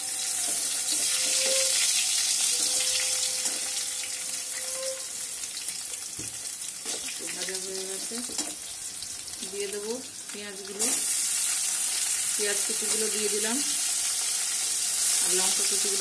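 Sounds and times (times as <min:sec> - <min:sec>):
metal spatula scraping pan: 0:00.0 - 0:05.3
oil sizzling in a wok: 0:00.0 - 0:16.0.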